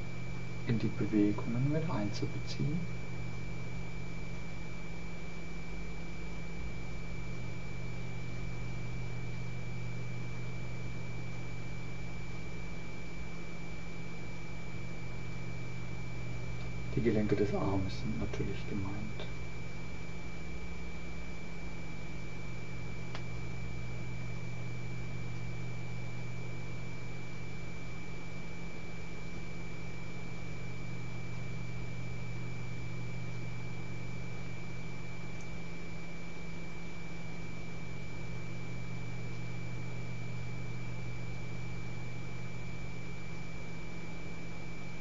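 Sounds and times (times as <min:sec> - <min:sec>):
high-pitched whine: 0:00.0 - 0:13.0, 0:14.0 - 0:27.9
electrical hum and hiss: 0:00.0 - 0:45.0
faint click: 0:23.1 - 0:23.3, 0:35.3 - 0:35.6.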